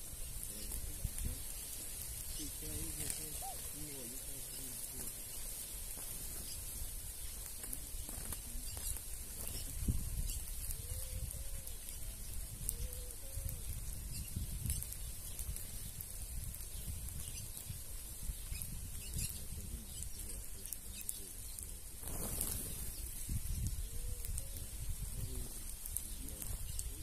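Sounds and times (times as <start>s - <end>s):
wing flutters: 0.0s - 16.1s, 17.2s - 27.0s
birds chirping and ticking: 0.0s - 27.0s
low two-humped bird call: 0.1s - 5.6s, 6.3s - 15.3s.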